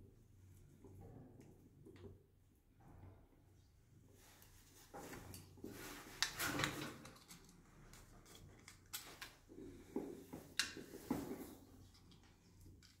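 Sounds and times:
wires rustling and scraping: 0:04.0 - 0:13.0.

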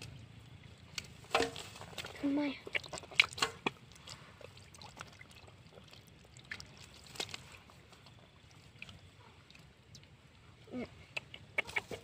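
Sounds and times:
water splashing: 0:00.6 - 0:10.2.

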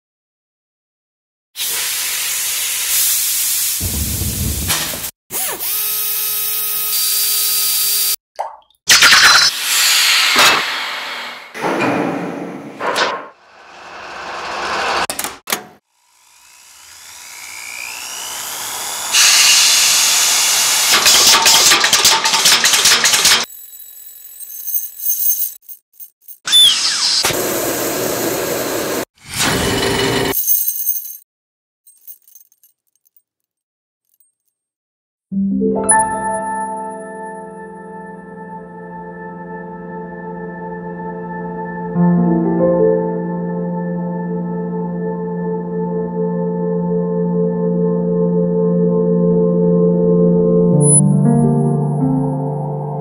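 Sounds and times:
welding arc humming and hissing: 0:01.7 - 0:05.1
metalworking machine noise: 0:16.2 - 0:23.5.

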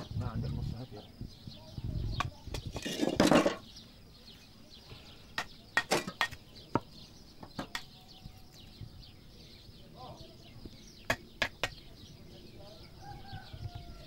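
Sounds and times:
trowel tapping on brick: 0:11.0 - 0:11.8.

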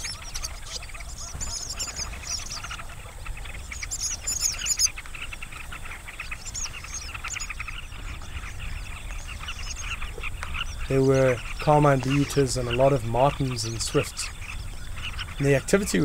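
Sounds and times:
flock of birds calling: 0:00.0 - 0:16.0
high bird twittering: 0:00.0 - 0:16.0.

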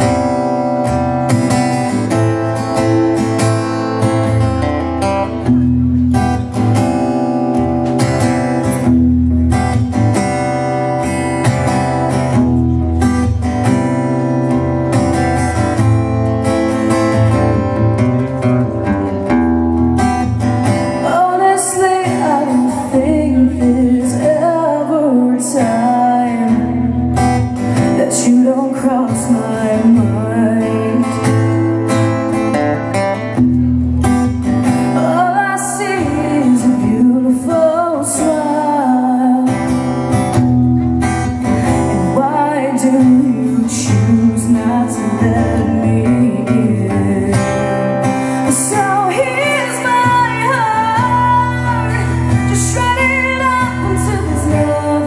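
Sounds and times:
acoustic guitar strumming: 0:00.0 - 0:55.0
woman singing: 0:20.2 - 0:32.3, 0:34.6 - 0:40.1, 0:41.4 - 0:55.0.

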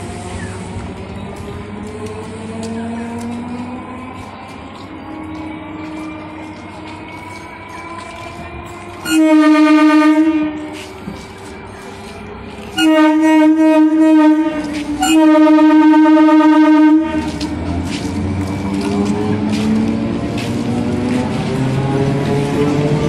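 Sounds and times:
train running noise: 0:00.0 - 0:23.0
train horn blasts: 0:09.0 - 0:10.9, 0:12.7 - 0:17.5.

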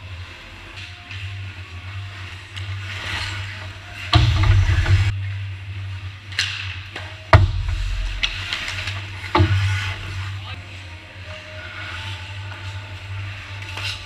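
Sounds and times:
skates scraping ice: 0:00.0 - 0:14.0
low hum: 0:03.6 - 0:06.3, 0:07.3 - 0:13.8
heavy thud against rink boards: 0:04.2 - 0:05.1, 0:07.4 - 0:10.2.

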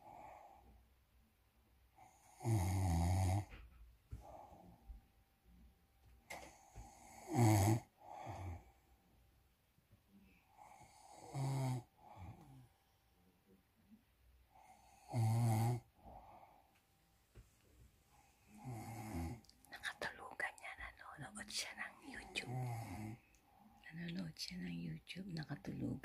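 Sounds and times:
quiet breath: 0:00.0 - 0:25.7
man snoring loudly: 0:02.2 - 0:03.5, 0:07.0 - 0:08.6, 0:10.8 - 0:11.8, 0:14.9 - 0:15.8, 0:18.6 - 0:19.4, 0:22.5 - 0:23.2.

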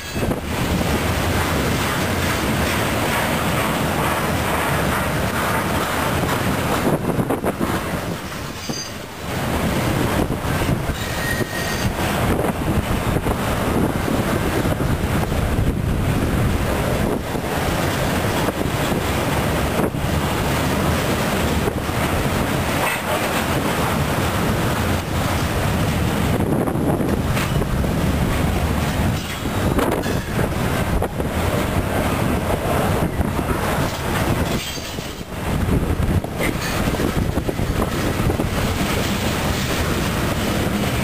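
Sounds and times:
train wheel squeal: 0:00.0 - 0:00.4, 0:08.2 - 0:09.1, 0:10.9 - 0:12.0, 0:29.2 - 0:30.5
freight train wheels rumbling: 0:00.0 - 0:41.0.

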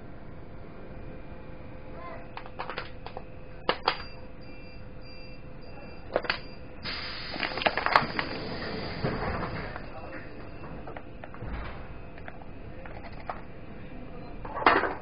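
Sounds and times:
train interior hum: 0:00.0 - 0:15.0
train rattle and rumble: 0:07.7 - 0:13.7.

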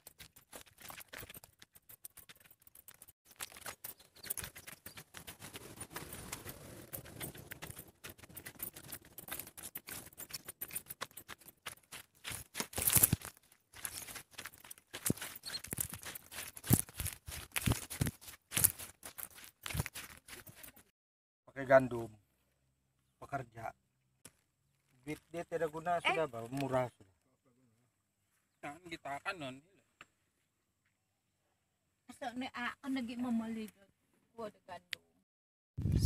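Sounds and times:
footsteps crunching on dry straw: 0:03.3 - 0:20.9
knocks and scuffs: 0:03.3 - 0:20.9.

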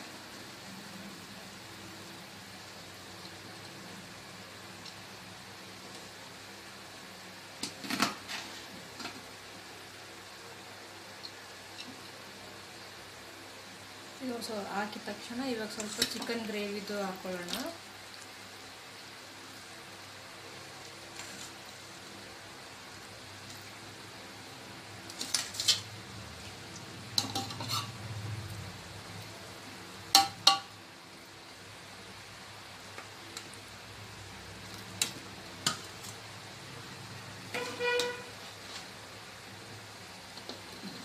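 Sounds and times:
spoon scraping metal pot: 0:27.2 - 0:28.0, 0:37.5 - 0:38.3.

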